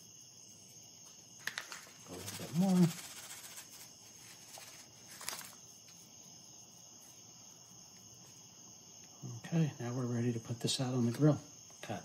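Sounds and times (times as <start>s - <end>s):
foil pouch crinkling: 1.4s - 5.6s.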